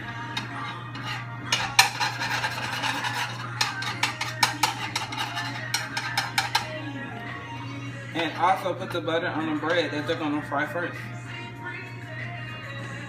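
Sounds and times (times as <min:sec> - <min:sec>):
utensil scraping and clicking: 0:00.4 - 0:06.7.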